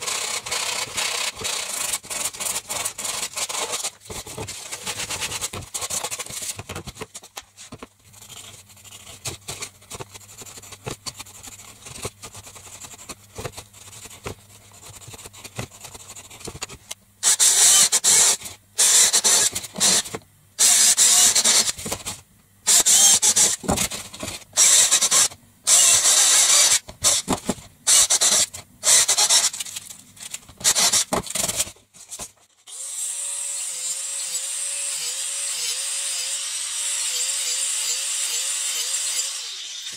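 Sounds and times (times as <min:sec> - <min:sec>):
power drill boring plastic pipe: 0:00.0 - 0:03.9, 0:17.2 - 0:21.8, 0:22.7 - 0:23.6, 0:24.6 - 0:27.3, 0:27.9 - 0:29.6, 0:32.7 - 0:39.9.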